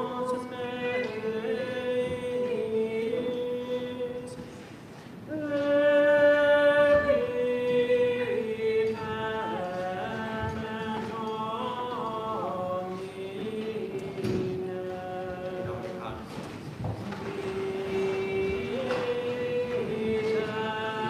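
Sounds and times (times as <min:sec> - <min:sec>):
voices singing plainchant: 0:17.0 - 0:21.0.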